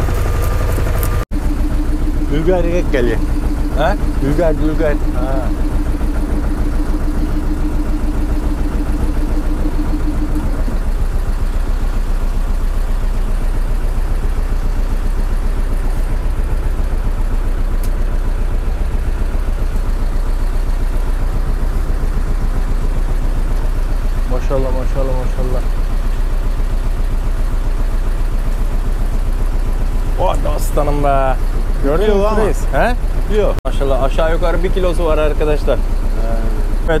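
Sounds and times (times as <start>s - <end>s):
steady hum: 0.0s - 11.6s
boat engine running: 0.0s - 37.0s.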